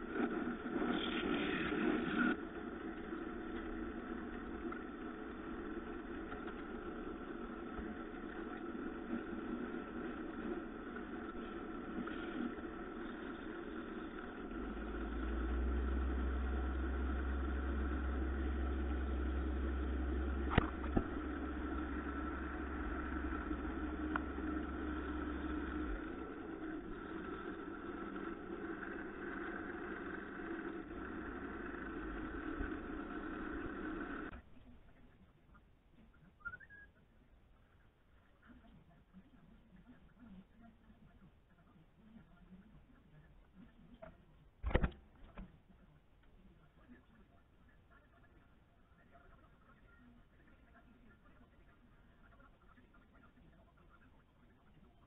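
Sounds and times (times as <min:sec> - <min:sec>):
deep low hum: 0:00.0 - 0:34.4
wood lathe running: 0:00.0 - 0:34.4
sharp click: 0:44.6 - 0:45.4.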